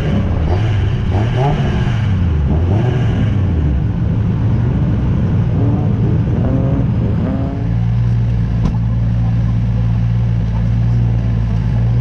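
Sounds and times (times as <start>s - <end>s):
car engine revving under load: 0.0s - 12.0s.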